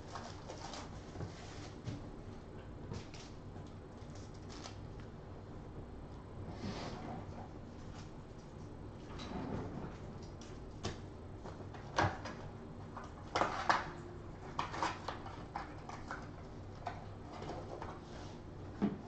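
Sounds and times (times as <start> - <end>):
cardboard packaging crinkling: 4.0 - 4.8.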